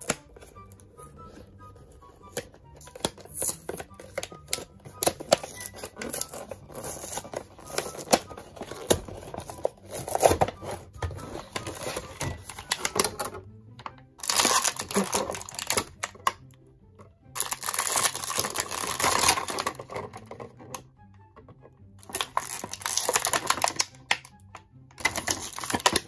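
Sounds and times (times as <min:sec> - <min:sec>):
plastic blister pack crinkling: 0:02.2 - 0:13.4, 0:14.2 - 0:16.3, 0:17.4 - 0:20.4, 0:22.0 - 0:24.4, 0:25.0 - 0:26.0.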